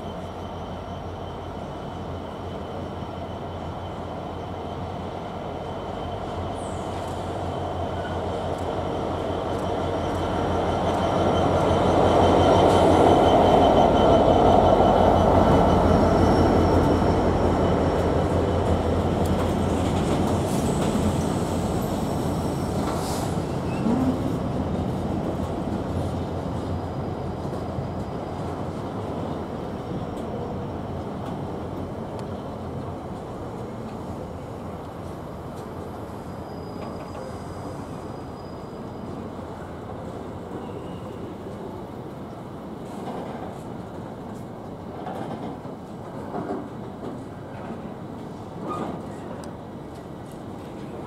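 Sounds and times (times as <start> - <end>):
diesel locomotive engine: 0.0 - 51.0
high wheel squeal: 36.1 - 39.3.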